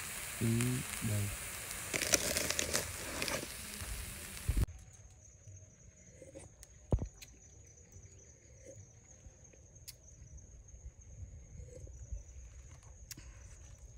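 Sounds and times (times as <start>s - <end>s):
high-pitched insect trill: 0.0s - 13.9s.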